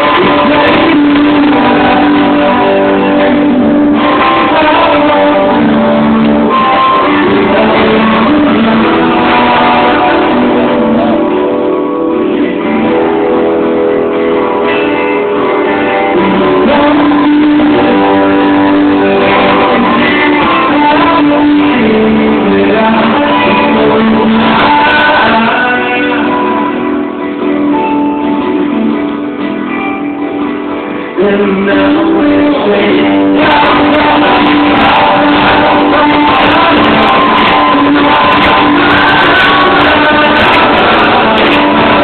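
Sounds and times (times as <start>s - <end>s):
live band with guitars: 0.0s - 42.0s.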